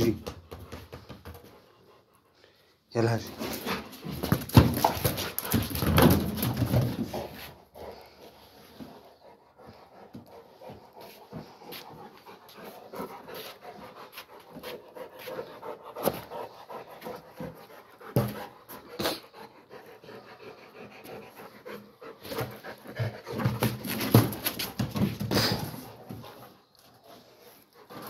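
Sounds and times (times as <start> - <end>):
ball knocking on tiled floor: 0.2 - 1.5, 4.1 - 7.2
dog panting: 0.5 - 28.0.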